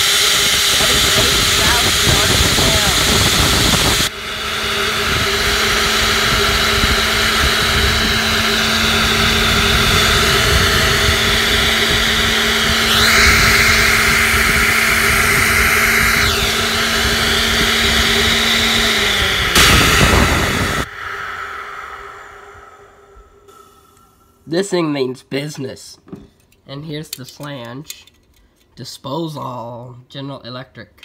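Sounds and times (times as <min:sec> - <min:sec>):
garbage disposer whirring: 0:00.0 - 0:21.9.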